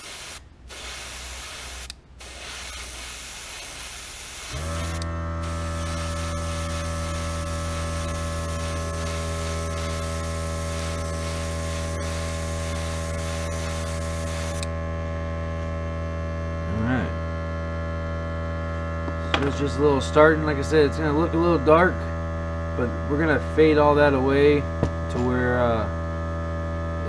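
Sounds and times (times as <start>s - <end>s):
airbrush spray hissing: 0.0s - 14.7s
compressor humming: 0.0s - 27.0s.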